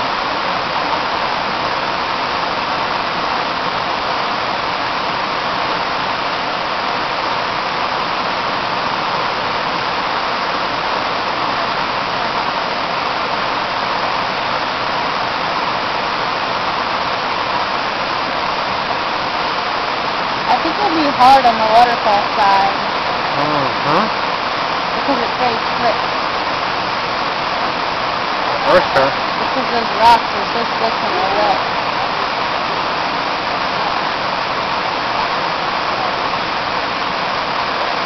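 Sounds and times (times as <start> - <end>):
waterfall rushing over rock: 0.0 - 38.0.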